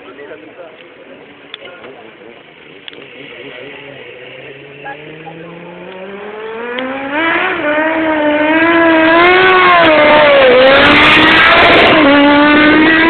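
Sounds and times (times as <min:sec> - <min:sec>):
motorcycle engine revving hard: 0:02.7 - 0:13.0.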